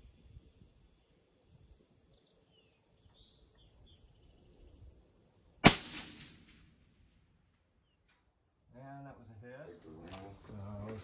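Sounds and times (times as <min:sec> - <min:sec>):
faint bird chirps: 0:00.0 - 0:05.6, 0:07.6 - 0:08.5
steady high hiss: 0:00.0 - 0:10.0
loud rifle shot with echo: 0:05.6 - 0:06.7.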